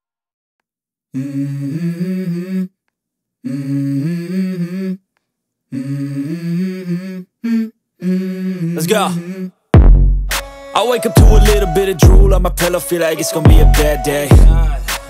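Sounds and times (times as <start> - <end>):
wordless humming vocal: 1.2 - 2.8, 3.4 - 5.0, 5.7 - 9.6, 10.6 - 15.0.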